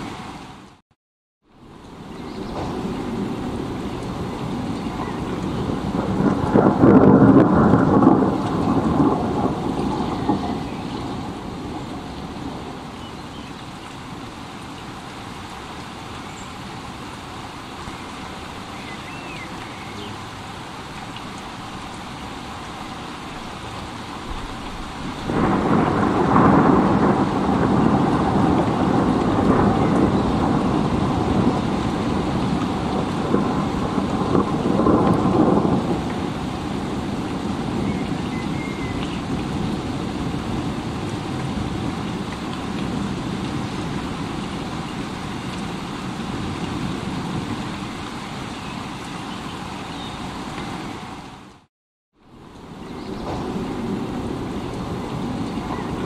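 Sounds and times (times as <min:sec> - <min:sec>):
steady rain: 0:00.0 - 0:00.8, 0:01.4 - 0:56.0
thunder rumbling: 0:01.9 - 0:13.0, 0:22.8 - 0:47.8, 0:52.7 - 0:56.0.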